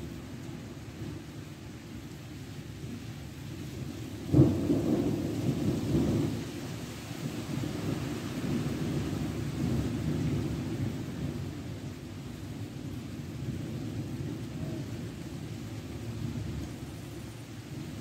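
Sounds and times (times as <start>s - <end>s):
steady rain: 0.0s - 18.0s
thunder rumbling: 4.2s - 18.0s.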